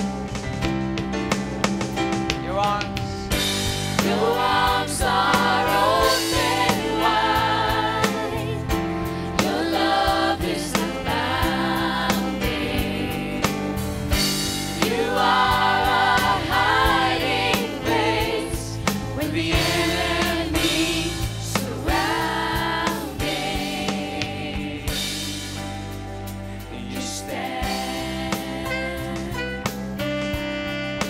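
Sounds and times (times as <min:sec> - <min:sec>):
drums: 0:00.0 - 0:31.0
keyboard: 0:00.0 - 0:31.0
voices singing: 0:04.0 - 0:08.8, 0:09.4 - 0:13.8, 0:14.8 - 0:25.5.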